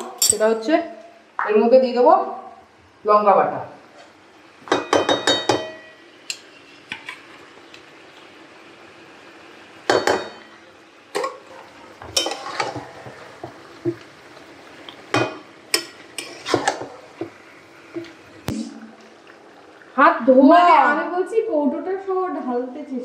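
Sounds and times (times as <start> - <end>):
faint sizzle: 0.0 - 23.0
metal spoon scraping cooking pan: 12.1 - 13.5, 15.7 - 17.0.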